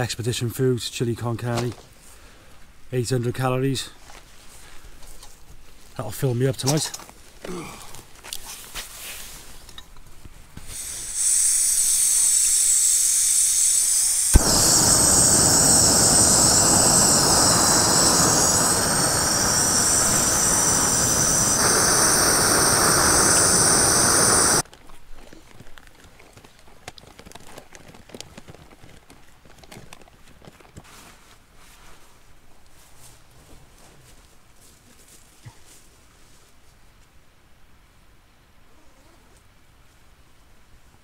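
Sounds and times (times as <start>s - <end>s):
gas hissing: 10.6s - 24.6s
stove flame rushing: 10.6s - 24.6s.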